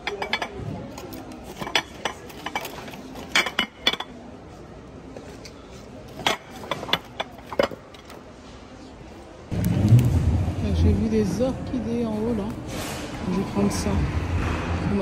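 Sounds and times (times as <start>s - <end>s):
glass containers clinking: 0.0s - 4.2s, 6.1s - 8.2s.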